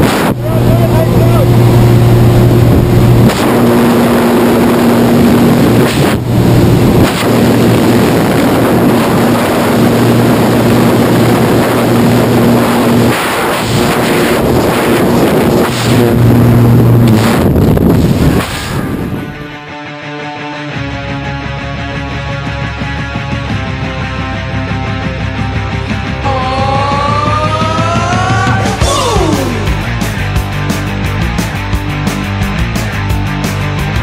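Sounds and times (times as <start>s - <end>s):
wind rushing over microphone: 0.0s - 19.5s
steady low drone: 0.0s - 19.7s, 20.8s - 34.0s.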